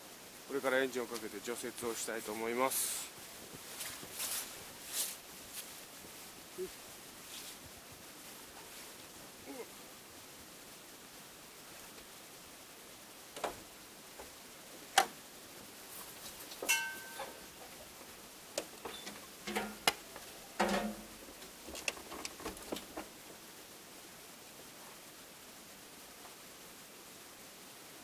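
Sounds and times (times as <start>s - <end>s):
short metallic ring: 16.7s - 17.4s
clicks and knocks of handling: 18.6s - 23.1s
dull thumps: 18.6s - 23.4s.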